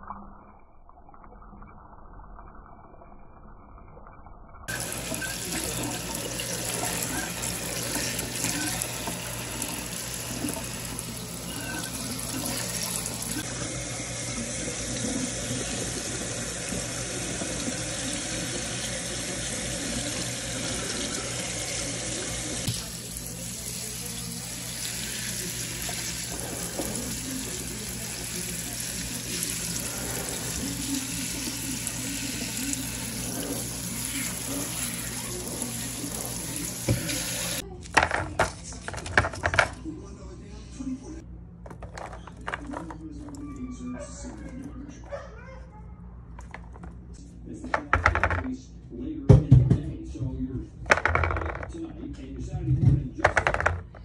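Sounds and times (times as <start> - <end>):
tap water splashing in sink: 22.6 - 22.9, 34.0 - 37.6.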